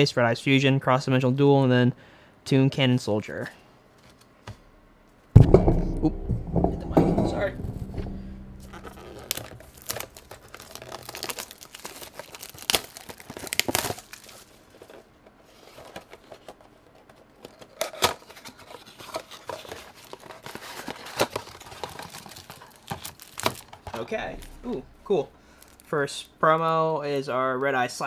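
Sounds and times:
packaging crinkling and tearing: 0:09.0 - 0:24.7, 0:25.6 - 0:25.9.

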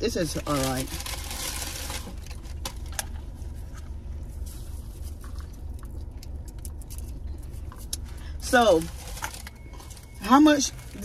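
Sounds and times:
low hum: 0:00.0 - 0:11.0
paper wrapping rustling: 0:00.2 - 0:03.0, 0:08.6 - 0:11.0.

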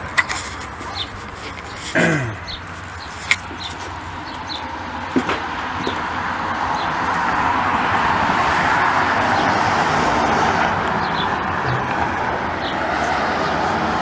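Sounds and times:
car driving past: 0:07.3 - 0:14.0.

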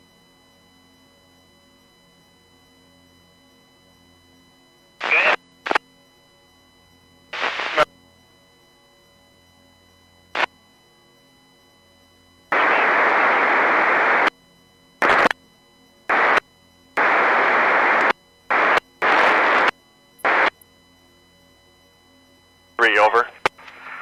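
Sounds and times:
radio click: 0:05.0 - 0:05.8, 0:07.4 - 0:07.9, 0:15.0 - 0:15.4, 0:17.0 - 0:20.6, 0:22.8 - 0:24.0
radio static bursts: 0:05.0 - 0:05.8, 0:07.3 - 0:07.9, 0:12.5 - 0:14.3, 0:15.0 - 0:15.4, 0:16.1 - 0:16.4, 0:17.0 - 0:20.6, 0:22.8 - 0:24.0.

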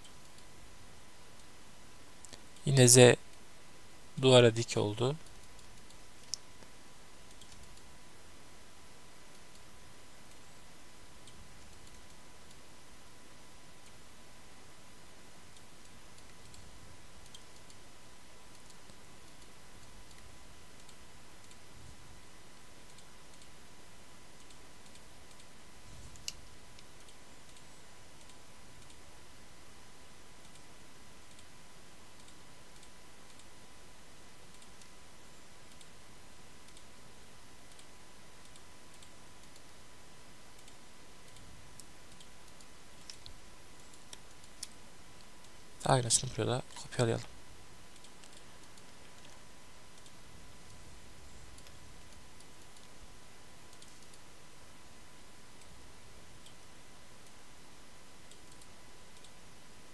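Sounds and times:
faint steady hiss: 0:00.0 - 0:59.9
mouse and keyboard clicks: 0:07.3 - 0:07.9, 0:40.6 - 0:45.3.

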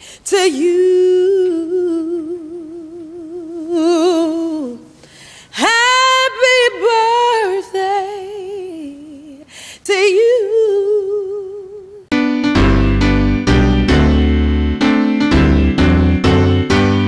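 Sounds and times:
singer breathing: 0:00.0 - 0:00.3, 0:04.9 - 0:05.6, 0:09.4 - 0:09.9
high voice singing with vibrato: 0:00.3 - 0:05.0, 0:05.6 - 0:12.1
piano music with heavy bass: 0:12.1 - 0:17.0.

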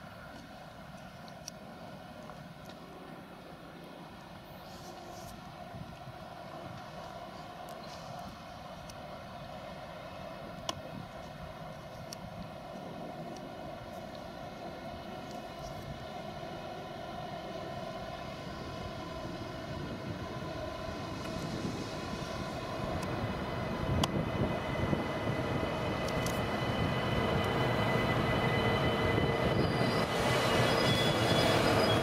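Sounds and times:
electric train whining hum: 0:00.0 - 0:32.0
train wheel rumble: 0:00.0 - 0:32.0.

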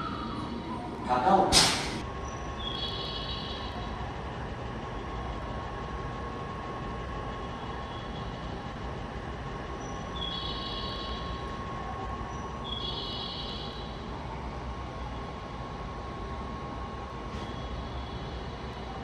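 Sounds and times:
train equipment humming: 0:00.0 - 0:19.0.

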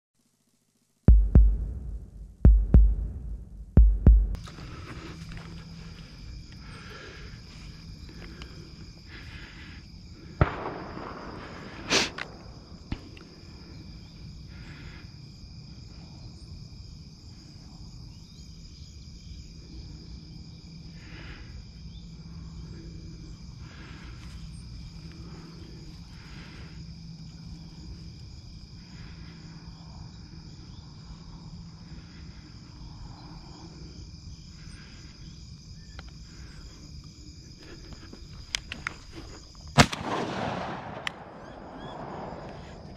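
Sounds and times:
low hum: 0:00.2 - 0:15.0
night insects chirping: 0:00.2 - 0:42.9
sharp bangs: 0:01.1 - 0:04.4, 0:10.4 - 0:13.2, 0:39.8 - 0:42.9
sharp cracks: 0:10.3 - 0:13.4, 0:39.8 - 0:42.9.

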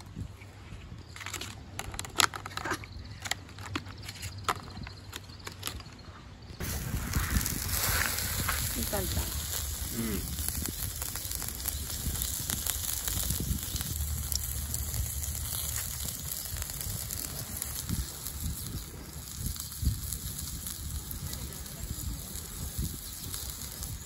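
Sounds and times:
wind rumble on microphone: 0:06.4 - 0:24.0
charcoal crackling: 0:06.6 - 0:24.0
food sizzling on a grill: 0:06.6 - 0:24.0.

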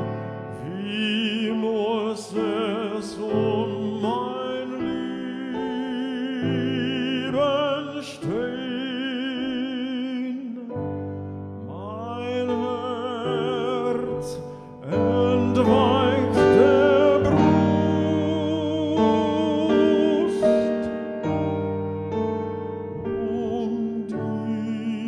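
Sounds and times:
man singing with vibrato: 0:00.0 - 0:25.0
piano chords: 0:00.0 - 0:25.0.

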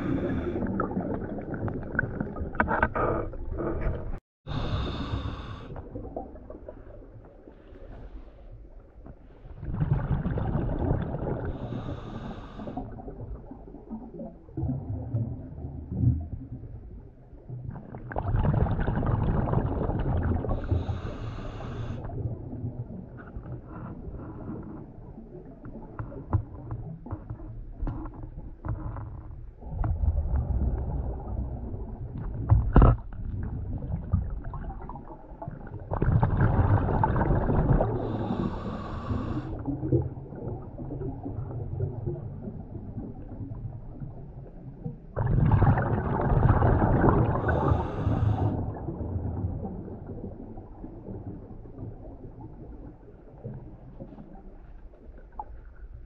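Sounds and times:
underwater exhaled bubbles gurgling: 0:00.0 - 0:56.0.

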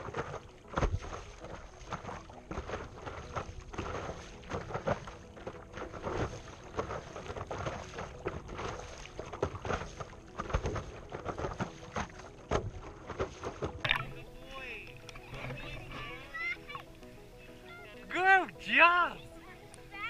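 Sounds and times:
water splashing against paddleboard: 0:00.0 - 0:20.0
knocks on paddleboard: 0:12.5 - 0:14.2.

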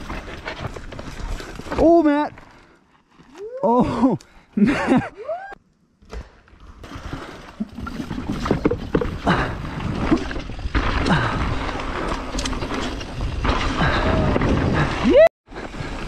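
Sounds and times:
bike knocking and rattling on rocks: 0:00.0 - 0:02.5, 0:07.9 - 0:15.0
bike tyres on loose gravel: 0:00.0 - 0:04.5, 0:06.6 - 0:16.0.

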